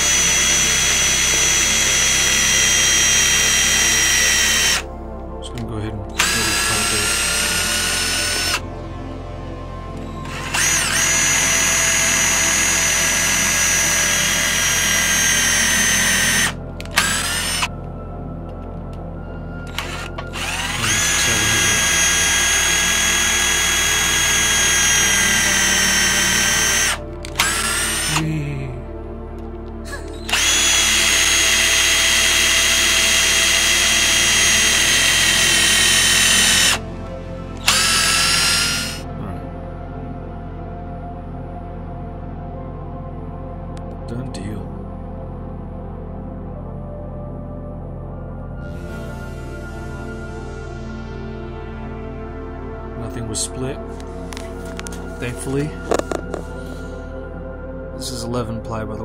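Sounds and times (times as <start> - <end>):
power drill whining into plywood: 0.0 - 4.9, 6.1 - 8.6, 10.0 - 17.7, 19.7 - 28.2, 29.9 - 36.9, 37.6 - 39.1.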